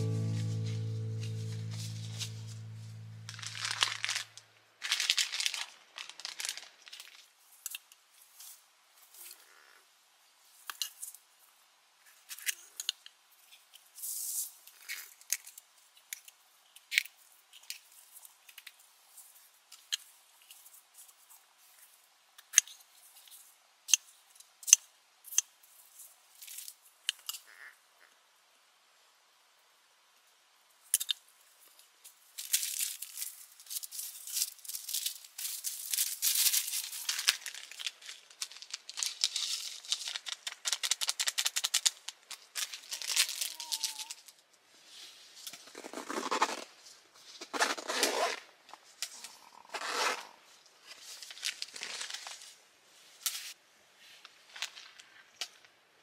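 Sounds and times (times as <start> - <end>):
peppers snapping and crunching: 0.0 - 4.4
plastic gloves crinkling: 0.0 - 7.6, 32.4 - 44.3, 50.9 - 52.6.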